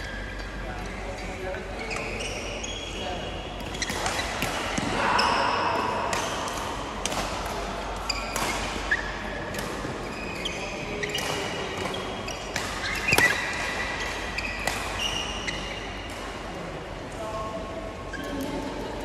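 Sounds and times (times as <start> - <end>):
shoes squeaking on court floor: 0.0 - 4.8, 8.0 - 16.2
racket hitting shuttlecock: 3.6 - 9.9, 11.0 - 16.4.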